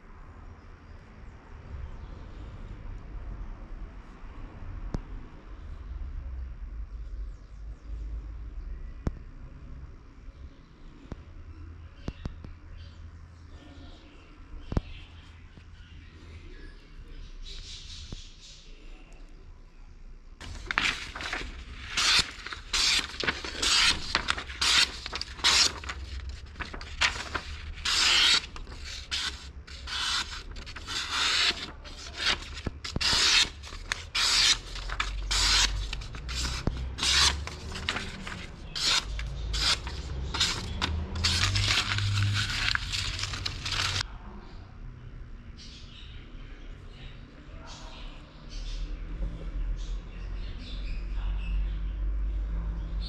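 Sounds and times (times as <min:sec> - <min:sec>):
knife slicing paper: 0:20.4 - 0:44.0.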